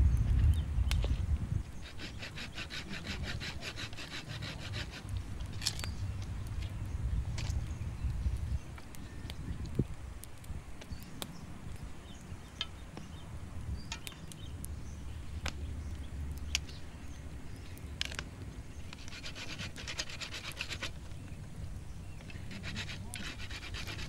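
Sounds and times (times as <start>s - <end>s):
campfire crackling: 0.0s - 24.0s
knife shaving wooden stick: 1.8s - 5.9s, 18.9s - 21.0s, 22.2s - 24.0s.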